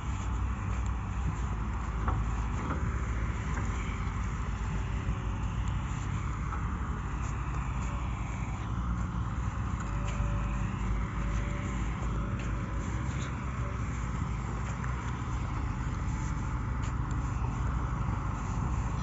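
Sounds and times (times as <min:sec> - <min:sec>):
diesel engines rumbling: 0:00.0 - 0:19.0.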